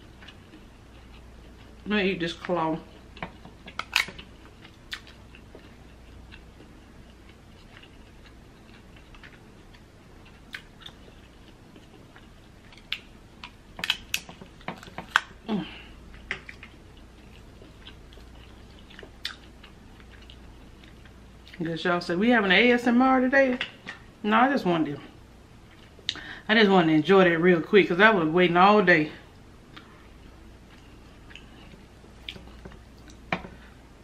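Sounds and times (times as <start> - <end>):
faint chewing: 0.0 - 21.7, 25.6 - 26.3, 29.7 - 33.8
lobster shell cracking: 3.2 - 4.2, 12.8 - 15.4.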